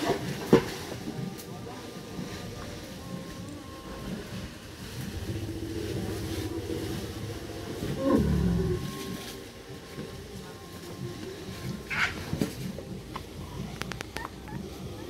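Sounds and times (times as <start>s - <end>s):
low steady rumble: 1.9s - 15.0s
elephant call dropping into rumble: 5.1s - 9.2s.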